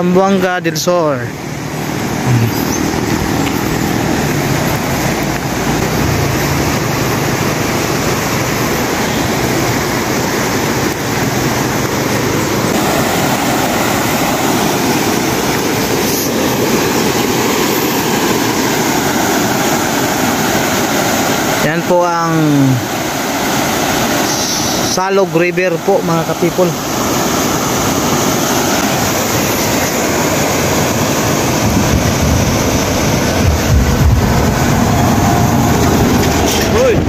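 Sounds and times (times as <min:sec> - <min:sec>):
river rapids over rocks: 0:00.1 - 0:33.7
low rumble: 0:31.6 - 0:37.0.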